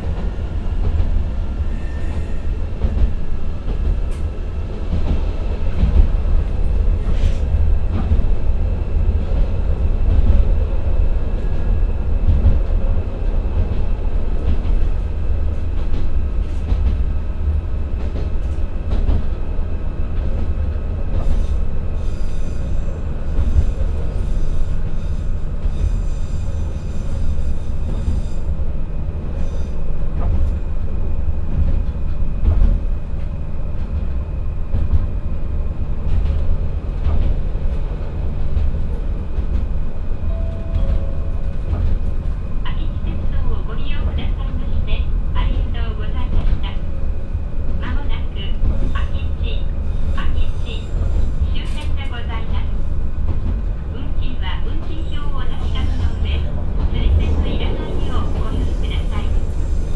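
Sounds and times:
high-pitched wheel-on-rail noise: 0.0 - 5.9, 38.9 - 59.9
railcar engine and wheels rumbling: 0.0 - 59.9.

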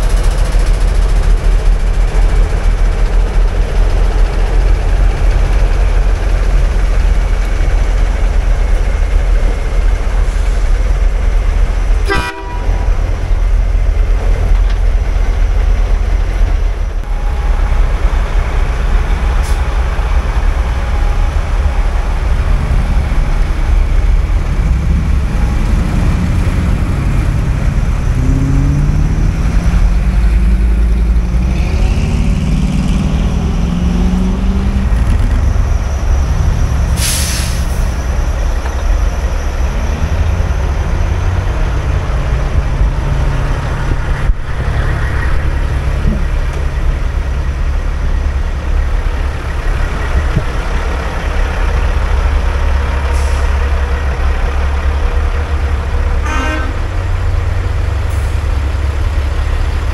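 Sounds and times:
diesel truck engines rumbling: 0.0 - 59.9
truck engine revving: 0.0 - 59.9
truck horn: 12.0 - 13.1, 56.2 - 57.2.

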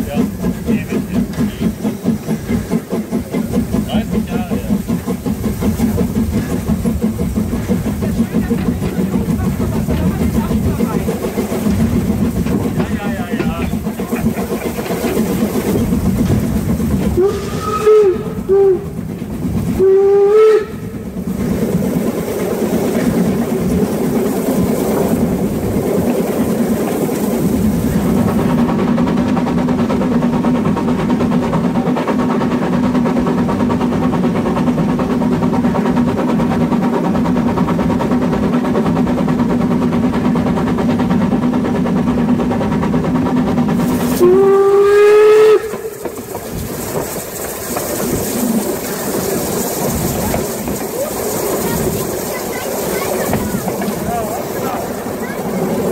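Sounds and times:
steam locomotive running: 0.0 - 55.9
steam whistle blasts: 17.2 - 18.8, 19.8 - 20.9, 44.2 - 45.9.

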